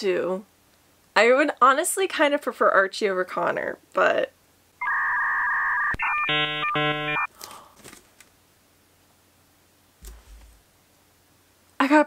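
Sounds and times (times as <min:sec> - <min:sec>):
buzzy electronic tone pattern: 0:04.8 - 0:07.3
two-tone beep: 0:04.8 - 0:07.3.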